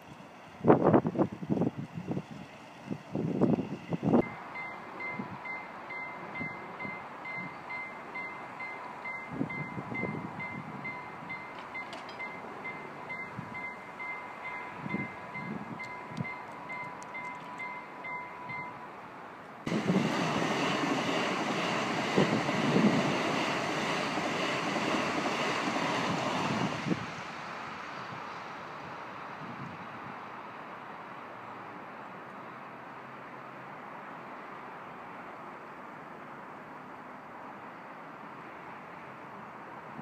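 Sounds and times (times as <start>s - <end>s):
loud rushing noise: 19.7s - 27.9s.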